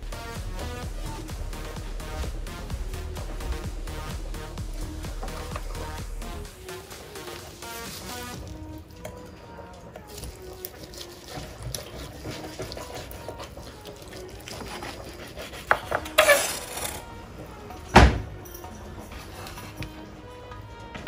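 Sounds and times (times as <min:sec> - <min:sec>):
knife sawing through roast: 0:10.4 - 0:17.0.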